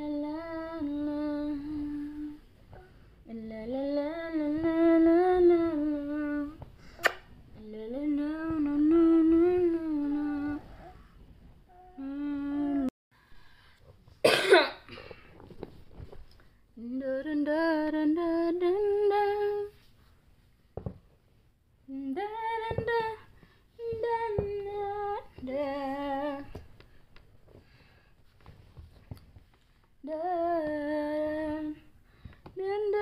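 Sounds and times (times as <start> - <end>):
woman humming a lullaby: 0.0 - 6.6, 7.6 - 11.1, 11.7 - 12.9.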